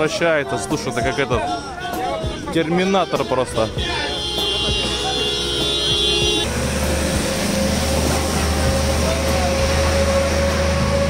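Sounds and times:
truck engine humming: 0:00.0 - 0:11.0
water jets spraying: 0:04.1 - 0:11.0.

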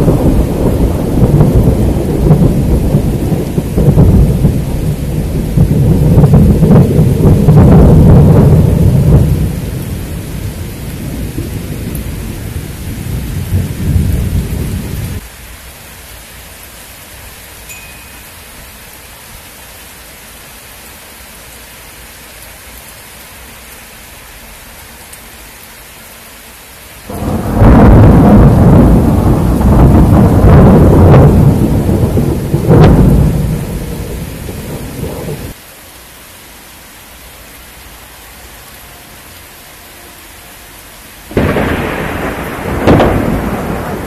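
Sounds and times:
thunder rumbling: 0:00.0 - 0:15.2, 0:27.1 - 0:35.6, 0:41.3 - 0:44.0
steady rain: 0:00.0 - 0:44.0.

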